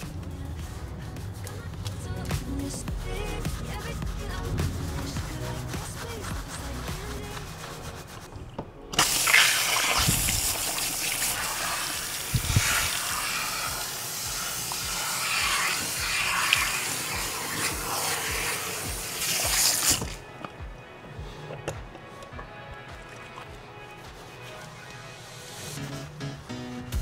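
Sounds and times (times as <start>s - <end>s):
spray hose water hissing: 9.0s - 20.2s.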